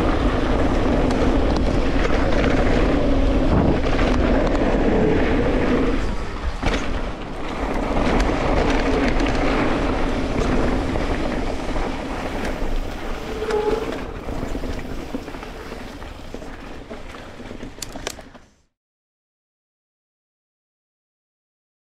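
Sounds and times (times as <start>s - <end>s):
wind on microphone: 0.0s - 18.0s
bike tyres rumbling on dirt: 0.0s - 18.6s.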